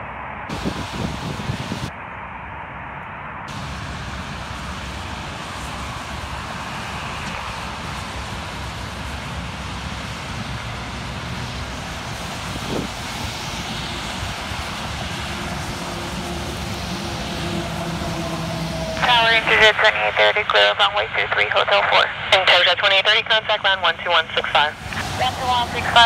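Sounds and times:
distant jet airliner landing: 0.0s - 26.0s
cars passing: 3.5s - 21.1s, 23.4s - 26.0s.

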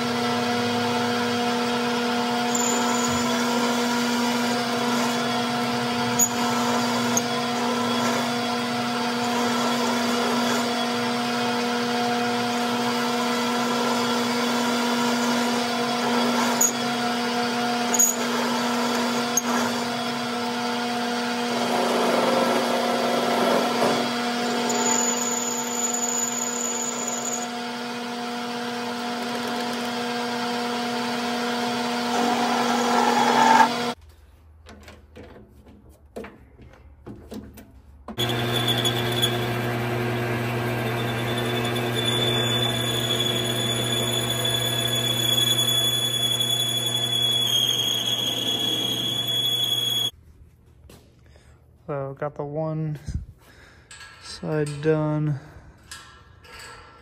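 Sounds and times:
small electric motor humming: 17.8s - 34.0s, 38.2s - 50.1s.

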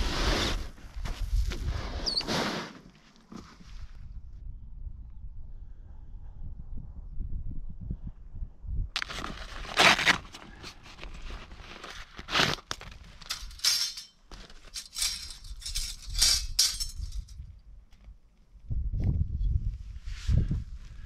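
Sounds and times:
thin metal parts clinking: 13.2s - 17.4s.

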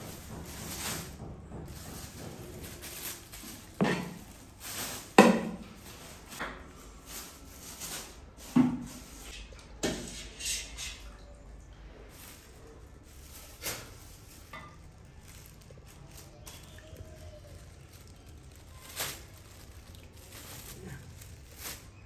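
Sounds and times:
utensils knocking against pots: 0.0s - 5.8s.

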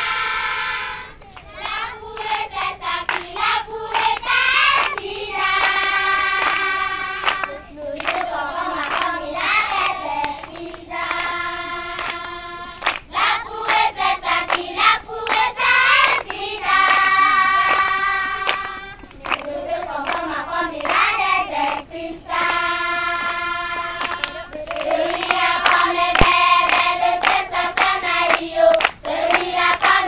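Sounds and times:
children singing together: 0.0s - 30.0s
hand claps: 0.2s - 30.0s.

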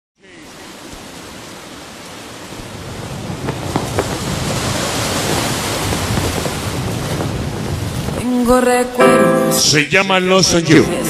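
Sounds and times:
steady rushing noise: 0.6s - 8.4s.

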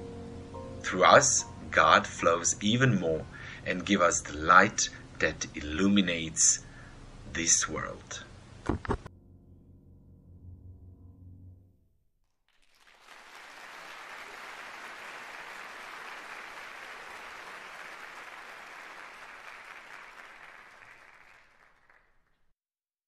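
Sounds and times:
crowd applauding: 12.6s - 22.4s.

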